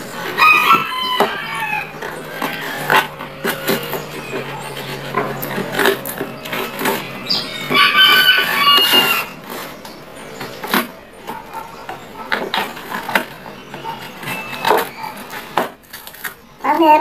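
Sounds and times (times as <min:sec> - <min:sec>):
packaging crinkling and tearing: 0:12.4 - 0:16.5.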